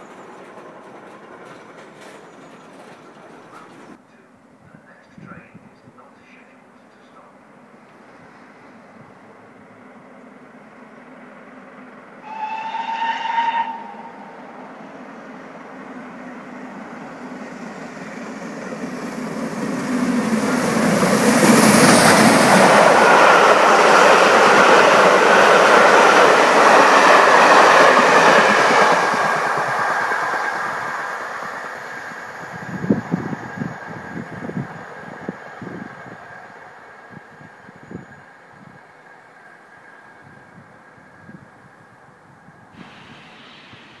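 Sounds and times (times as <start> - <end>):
train running on rails: 0.0 - 44.0
steam locomotive whistle: 12.2 - 14.5.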